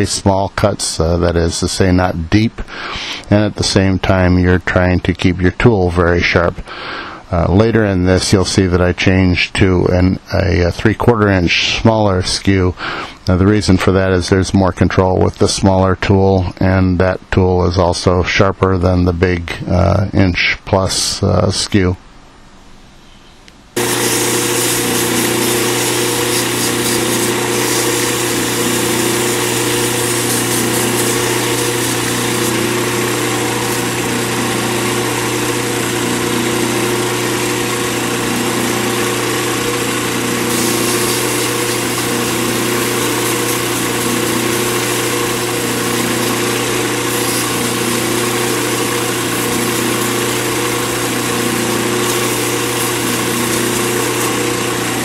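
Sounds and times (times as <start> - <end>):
lathe motor humming: 23.8 - 55.0
sandpaper hissing on spinning blank: 23.8 - 55.0.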